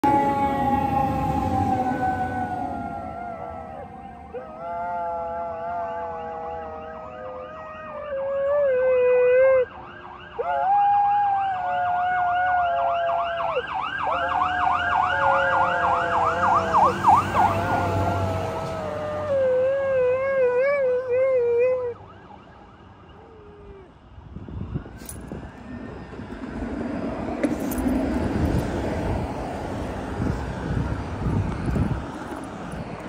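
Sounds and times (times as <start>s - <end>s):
passing truck rumble: 0.0s - 4.4s, 13.2s - 20.5s, 24.2s - 33.0s
dog howling: 0.0s - 9.7s, 15.0s - 22.0s
fire truck siren yelping: 0.0s - 23.6s.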